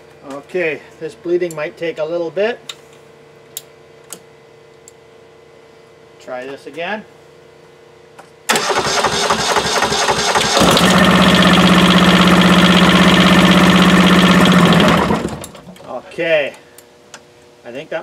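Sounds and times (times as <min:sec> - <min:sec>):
diesel engine running: 0:08.5 - 0:15.6
starter motor cranking: 0:08.5 - 0:15.8.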